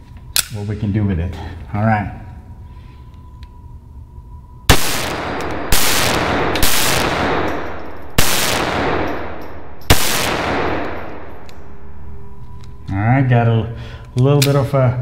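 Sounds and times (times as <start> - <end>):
pistol shots echoing: 4.7 - 12.4.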